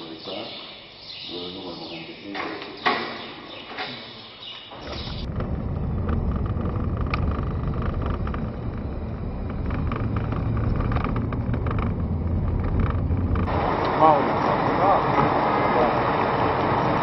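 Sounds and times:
car engine and road noise: 4.7s - 17.0s.

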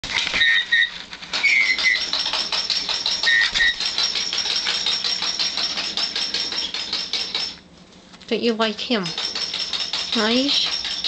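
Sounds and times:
toy rattling against cage: 1.3s - 7.6s, 9.0s - 11.0s.

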